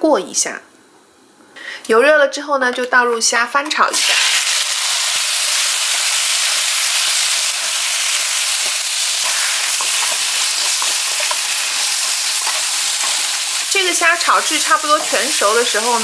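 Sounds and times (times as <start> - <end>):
shrimp sizzling in hot oil: 3.8 - 16.0
spatula scraping a wok: 7.5 - 13.7.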